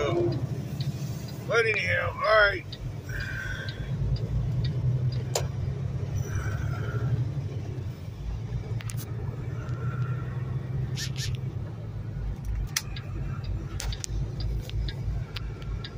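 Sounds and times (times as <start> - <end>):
truck diesel engine rumbling: 0.0 - 15.9
faint clicks: 11.1 - 15.9.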